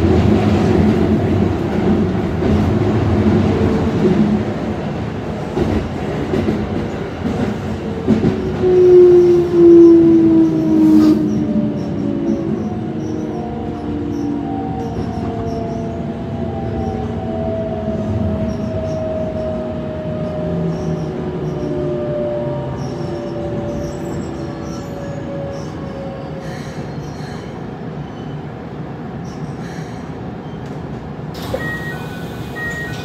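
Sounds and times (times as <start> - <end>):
rail and wheel noise: 0.0 - 33.0
air brake hiss: 31.4 - 33.0
train inverter tones falling: 31.4 - 33.0.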